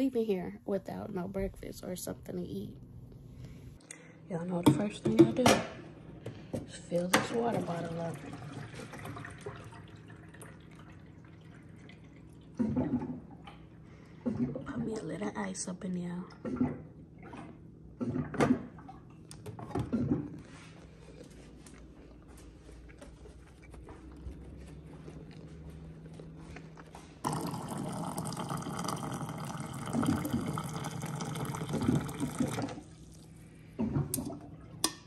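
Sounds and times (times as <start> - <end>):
low steady hum: 0.0 - 35.0
hot water pouring into a metal mug: 27.2 - 33.3.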